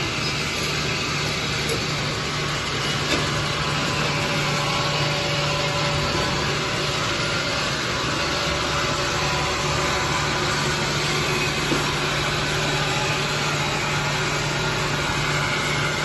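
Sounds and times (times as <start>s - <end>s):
machine hum and hiss: 0.0s - 16.0s.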